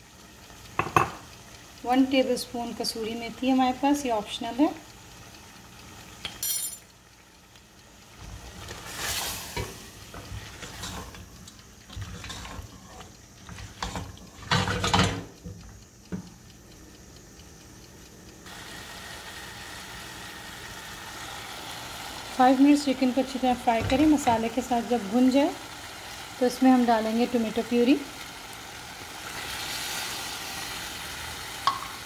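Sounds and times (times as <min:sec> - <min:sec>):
chicken sizzling in a pan: 0:00.0 - 0:16.6, 0:18.4 - 0:32.0
spoon stirring and scraping pan: 0:08.6 - 0:11.2, 0:11.9 - 0:15.0.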